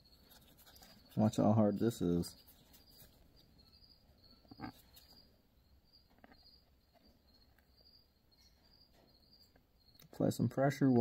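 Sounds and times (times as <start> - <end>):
faint insects chirping: 0.0 - 11.0.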